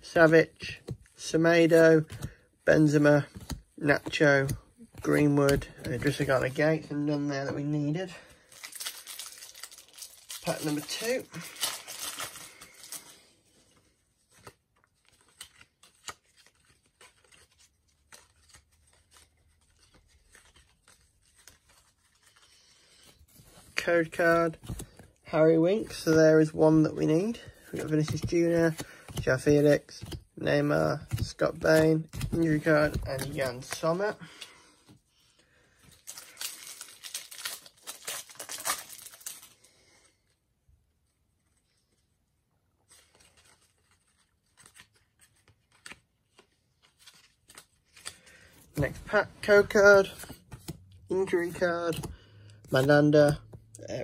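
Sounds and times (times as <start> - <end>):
card pack tearing open: 8.4 - 13.2, 35.9 - 39.6.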